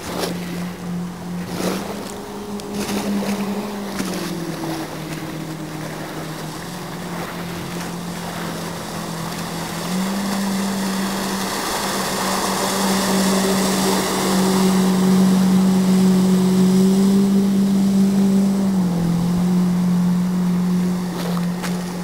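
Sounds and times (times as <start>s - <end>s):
boat engine droning: 0.0s - 22.0s
hull and spray rushing on water: 0.0s - 22.0s.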